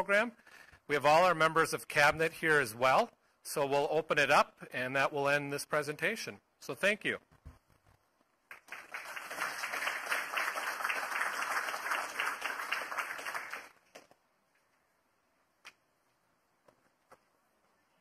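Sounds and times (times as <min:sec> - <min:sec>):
audience applauding: 0:08.5 - 0:13.8.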